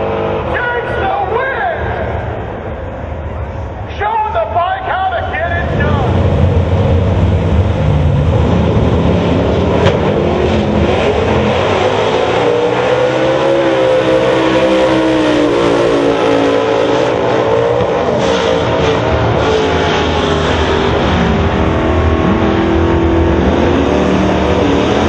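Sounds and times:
race car engines revving: 0:00.0 - 0:25.0
race cars accelerating through gears: 0:05.6 - 0:25.0.

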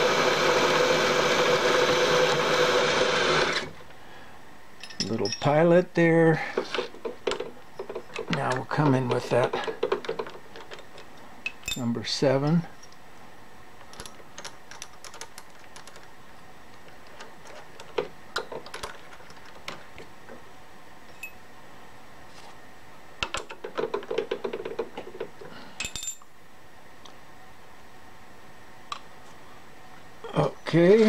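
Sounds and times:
metal tools clicking and clinking: 0:04.8 - 0:05.6, 0:09.5 - 0:13.0, 0:25.8 - 0:26.3.

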